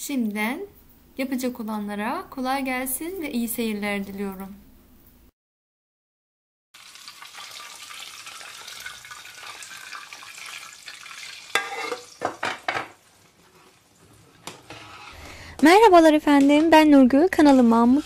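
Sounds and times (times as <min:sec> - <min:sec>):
hot fat sizzling: 0:06.8 - 0:15.2.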